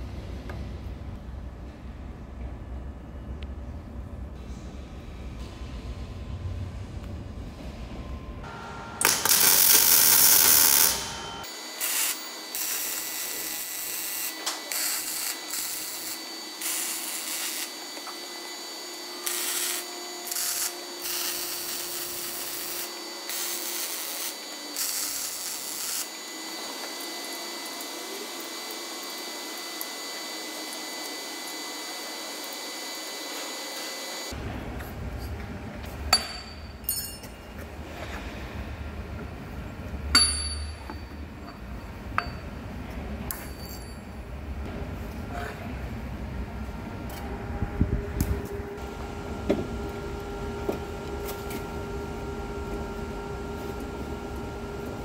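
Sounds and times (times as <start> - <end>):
steady high-pitched whine: 5.0 - 35.3, 46.0 - 55.0
welding crackling: 9.0 - 28.0.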